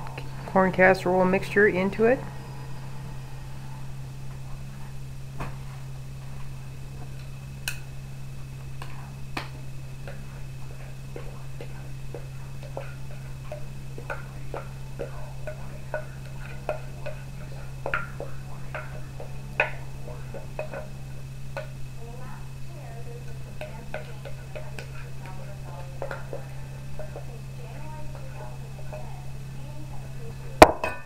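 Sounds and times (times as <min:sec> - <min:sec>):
steady low hum: 0:00.0 - 0:31.0
utensil knocking bowl and pot: 0:08.8 - 0:21.8, 0:23.2 - 0:29.2, 0:30.6 - 0:31.0.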